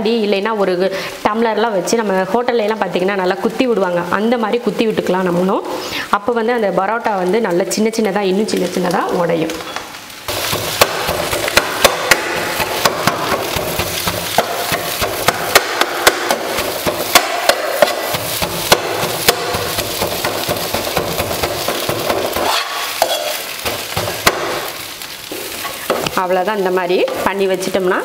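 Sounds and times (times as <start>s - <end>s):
food frying sizzle: 0.0s - 28.0s
metal tumbler knocking on pan: 10.3s - 24.6s.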